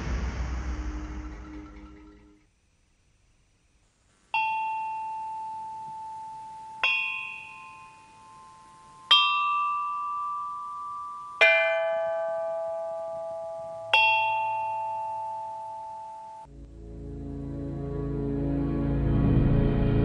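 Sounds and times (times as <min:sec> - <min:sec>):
struck bell notes ringing: 0:04.4 - 0:16.5.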